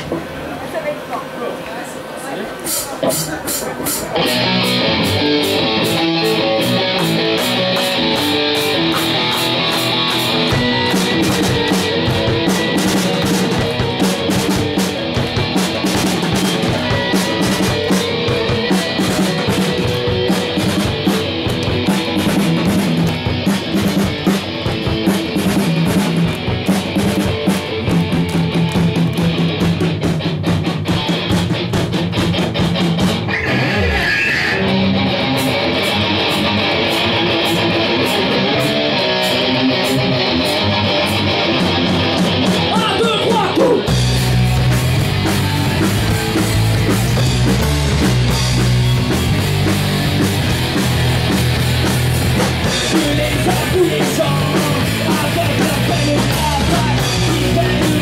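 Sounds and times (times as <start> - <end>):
rapid drum and cymbal hits: 2.6 - 58.0
live heavy metal band: 2.7 - 58.0
falling guitar slide: 33.1 - 42.8.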